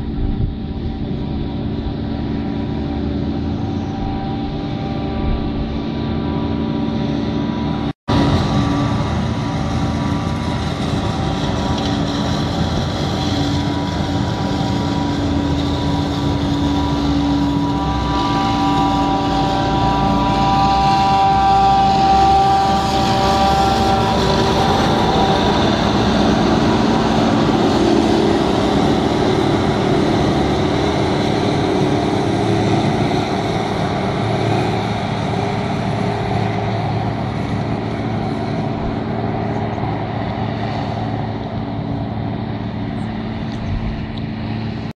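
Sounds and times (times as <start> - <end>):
high whine: 0.0 - 44.9
tractor engine running: 0.0 - 44.9
forage harvester chopping maize: 8.2 - 17.5.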